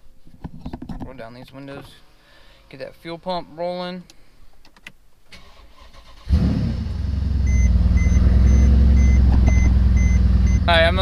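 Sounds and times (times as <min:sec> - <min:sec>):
car engine starting and idling: 0:05.3 - 0:11.0
dashboard warning chime beeping: 0:07.4 - 0:11.0.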